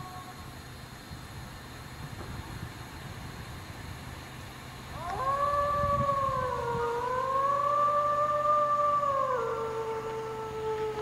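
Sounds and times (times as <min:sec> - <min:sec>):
canine howl: 0:05.0 - 0:11.0.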